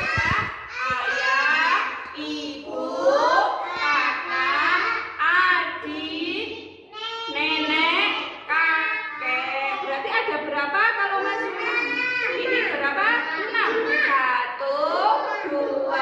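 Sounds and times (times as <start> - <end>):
woman and children singing: 0.0 - 6.6.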